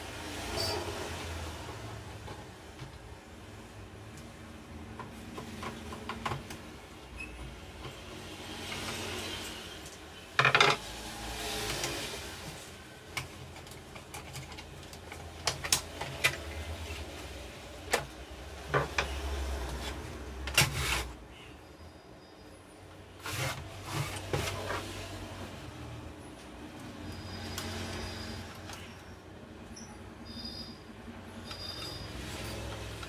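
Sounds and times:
plastic printer panels clicking and scraping: 13.2 - 16.5.

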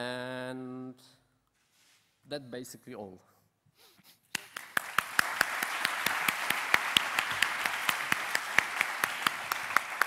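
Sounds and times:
audience applauding: 4.3 - 10.0
sharp nearby claps: 4.3 - 10.0.

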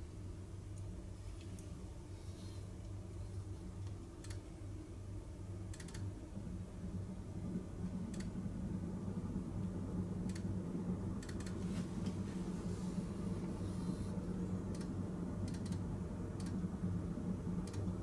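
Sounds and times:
low steady hum: 0.0 - 18.0
faint sharp clicks: 5.7 - 6.1.

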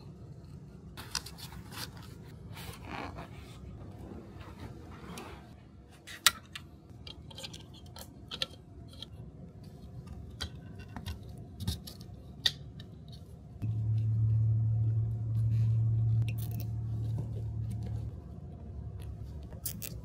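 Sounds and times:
steady low hum: 7.8 - 20.0.

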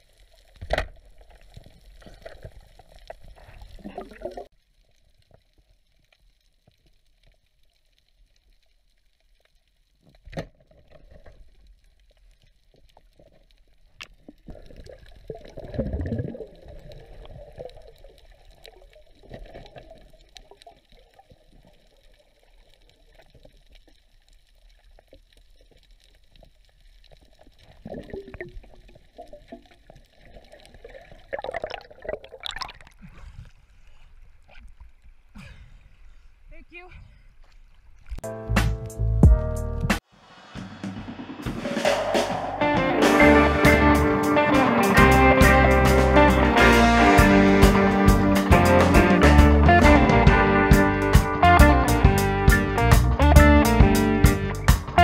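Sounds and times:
muffled underwater water bed: 0.0 - 38.2
water sloshing and splashing: 24.9 - 35.2
dull low rush of spear: 40.0 - 44.3.

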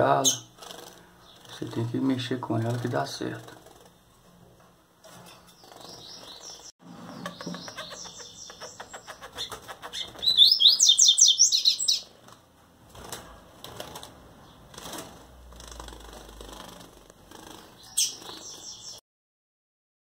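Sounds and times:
bird singing high quick notes: 10.2 - 12.0.

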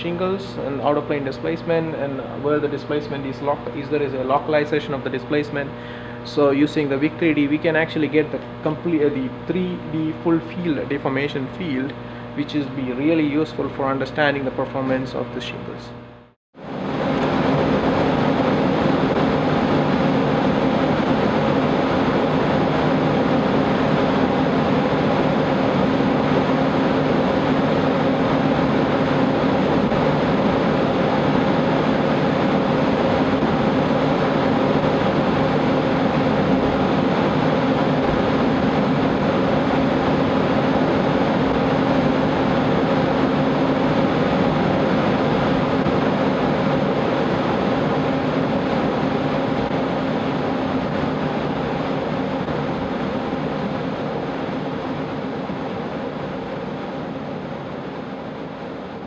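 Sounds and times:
wind tunnel fan rushing air: 16.6 - 59.0.

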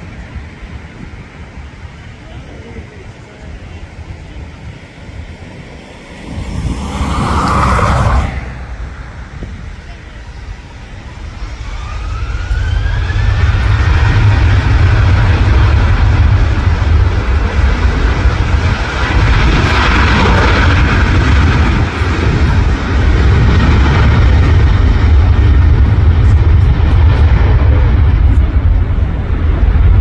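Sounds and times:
airliner engines roaring: 0.0 - 30.0
wind buffeting microphone: 0.0 - 30.0.

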